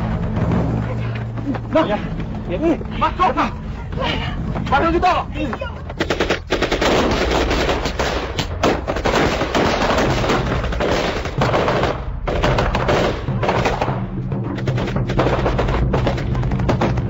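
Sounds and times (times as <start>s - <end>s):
low steady rumble: 0.0s - 17.0s
rapid gunfire: 5.9s - 17.0s.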